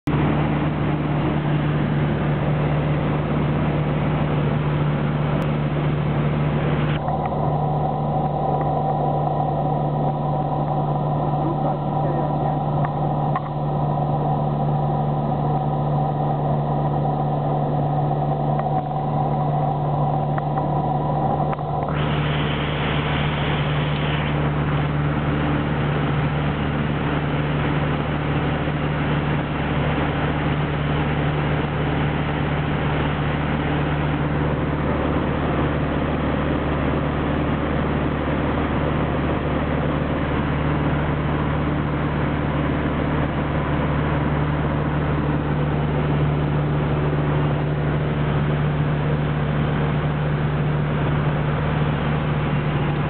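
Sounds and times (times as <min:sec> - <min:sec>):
air noise around canopy: 0:00.0 - 0:53.0
light aircraft engine droning: 0:00.0 - 0:53.0
steady high whine: 0:00.0 - 0:53.0.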